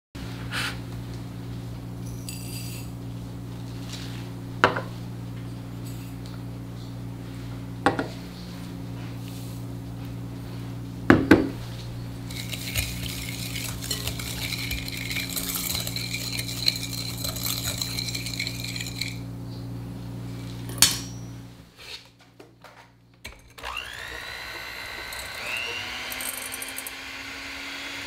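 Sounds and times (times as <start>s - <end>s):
steady low hum: 0.2s - 21.8s
whisk clinking against glass bowl: 12.3s - 19.3s.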